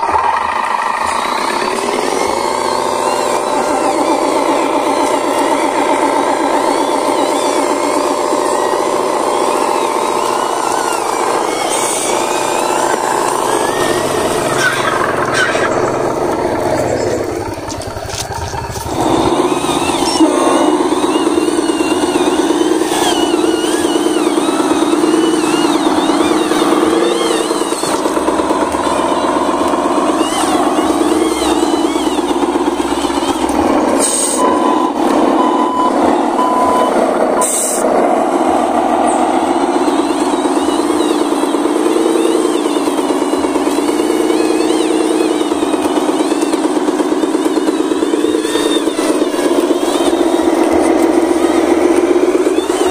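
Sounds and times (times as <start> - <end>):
model trucks engine drone: 0.0 - 52.9
short reversing beeps: 30.4 - 37.8.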